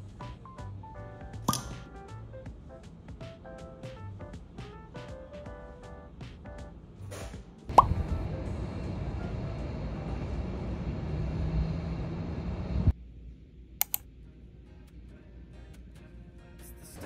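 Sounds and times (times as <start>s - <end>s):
hum of distant traffic: 7.7s - 12.9s
sharp clicks: 13.8s - 14.0s.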